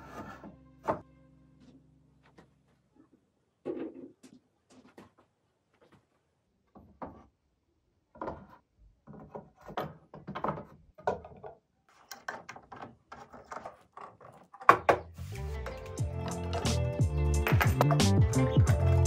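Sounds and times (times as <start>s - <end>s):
wooden beams knocking and scraping: 3.6s - 5.2s, 6.6s - 7.4s, 8.0s - 18.1s.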